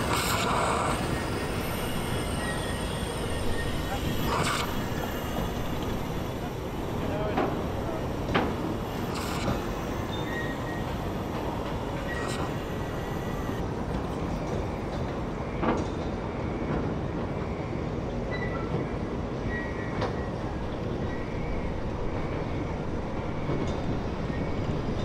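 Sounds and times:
sharp clicks: 0:00.0 - 0:13.6
steam hissing: 0:00.0 - 0:13.6.

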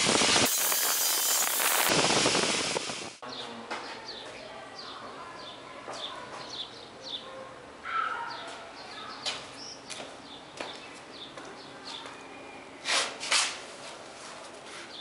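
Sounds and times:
small birds chirping: 0:03.3 - 0:07.3, 0:08.2 - 0:12.8.

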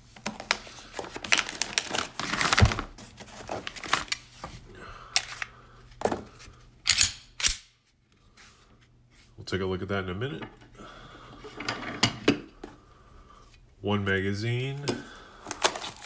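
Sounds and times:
plastic bag crinkling: 0:00.3 - 0:04.4, 0:15.1 - 0:16.0.

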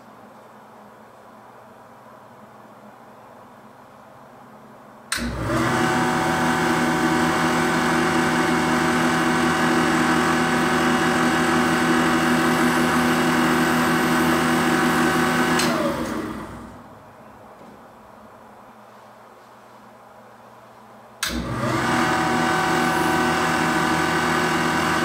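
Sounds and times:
electric motor humming: 0:21.3 - 0:25.0.

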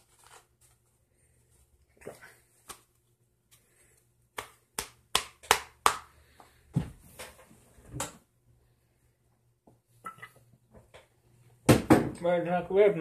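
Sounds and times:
playing cards slapping: 0:02.5 - 0:03.0, 0:04.3 - 0:06.4.

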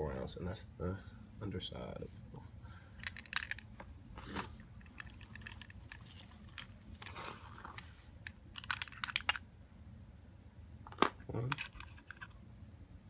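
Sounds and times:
soft rustles: 0:03.7 - 0:08.3
plastic magazine clicks and scrapes: 0:08.6 - 0:09.4.

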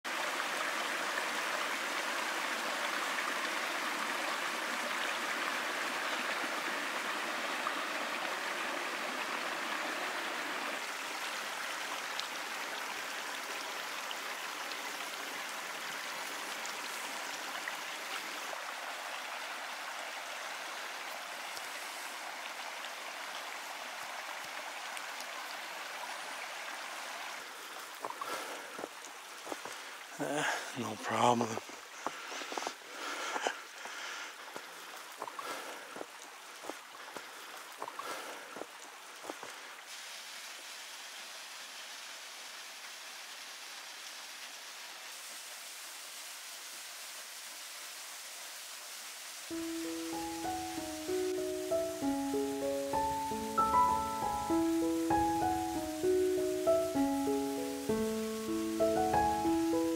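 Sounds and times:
creek running over rocks: 0:00.1 - 0:59.9.

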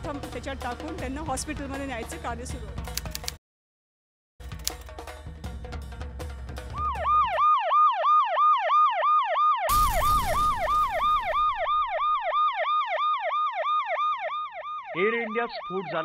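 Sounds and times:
yelping emergency siren: 0:06.7 - 0:16.0.

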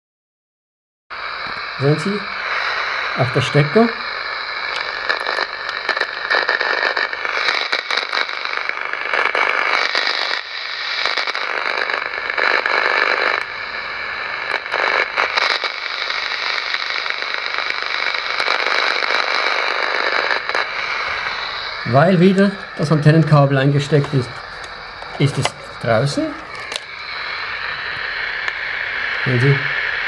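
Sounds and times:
crackling radio static: 0:01.1 - 0:30.0
steady whistling tones: 0:01.4 - 0:12.3, 0:18.2 - 0:30.0.

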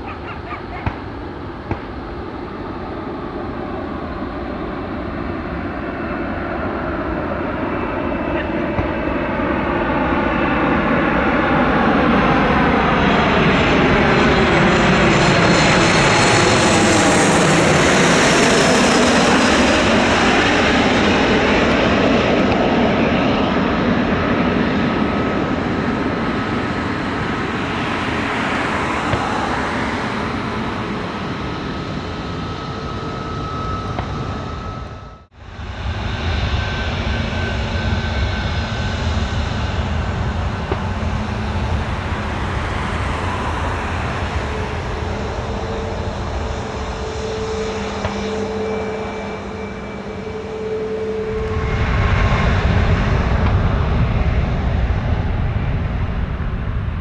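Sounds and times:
jet airliner flying overhead: 0:00.0 - 0:57.0.

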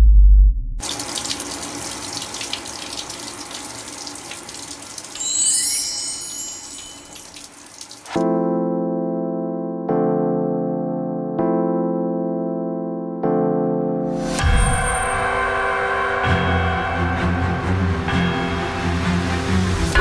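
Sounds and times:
deep low boom: 0:00.0 - 0:00.8
shower water spraying: 0:00.8 - 0:08.2
high chime: 0:05.2 - 0:07.6, 0:14.4 - 0:17.4.

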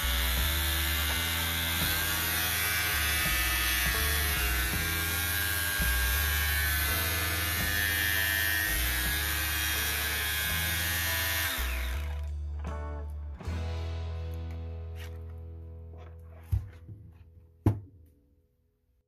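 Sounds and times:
orbital sander whirring: 0:00.0 - 0:12.3
background music with bass: 0:00.0 - 0:17.7.

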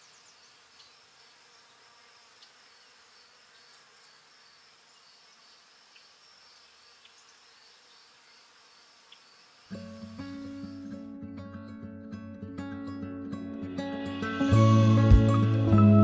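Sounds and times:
faint high hiss: 0:00.0 - 0:11.1
faint ticks: 0:07.0 - 0:07.3, 0:09.1 - 0:09.3.

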